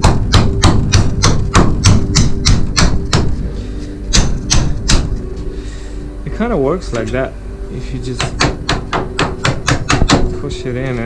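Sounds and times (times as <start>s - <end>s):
hammer tapping on metal scraper: 0.0s - 3.3s, 8.2s - 10.3s.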